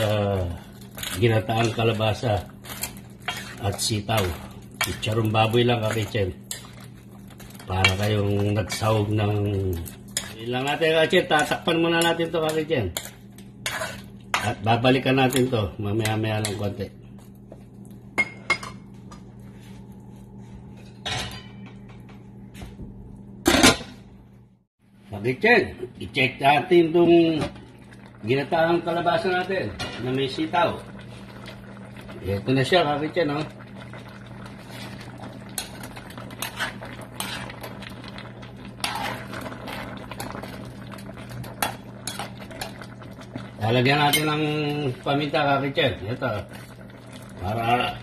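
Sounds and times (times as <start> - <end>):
utensils clinking and scraping pot: 0.0 - 16.8, 34.6 - 37.9, 38.6 - 45.4
low steady hum: 0.0 - 48.0.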